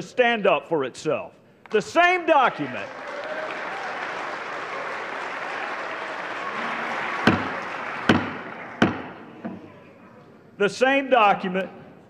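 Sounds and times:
crowd applauding: 2.5 - 9.4
sharp knocks: 7.2 - 9.6.

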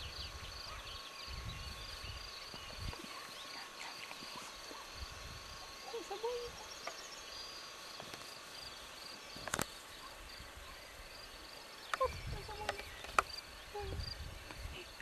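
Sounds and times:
insects chirping: 0.0 - 15.0
sharp clicks: 11.9 - 13.4.

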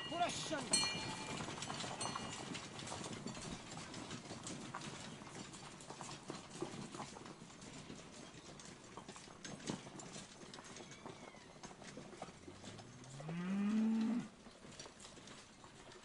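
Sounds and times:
scattered knocks and clacks: 0.0 - 10.8.

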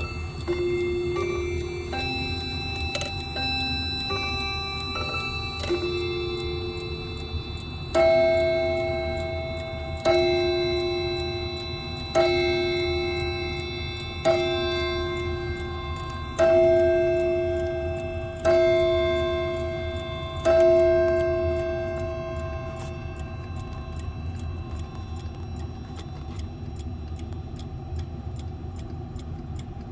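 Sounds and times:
clock chime rod striking: 0.0 - 28.4
clock ticking: 0.0 - 29.9
low steady rumble: 0.0 - 29.9.

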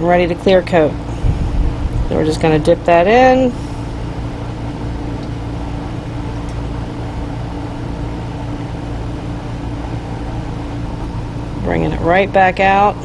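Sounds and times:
motor humming: 1.0 - 11.8.

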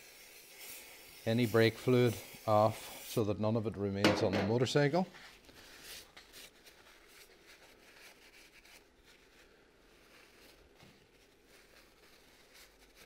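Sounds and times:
paper towel rustling: 4.5 - 13.0.

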